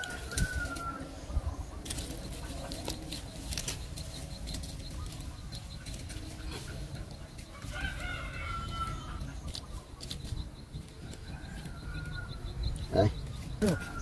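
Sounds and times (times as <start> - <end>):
rooster crowing: 0.0 - 1.1, 7.5 - 9.3
rustling and clicking: 1.8 - 7.8.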